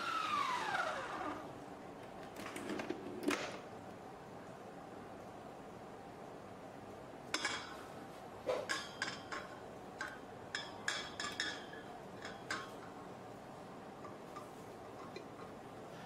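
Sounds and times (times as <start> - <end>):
spatula clinking on metal bowl: 8.7 - 13.0.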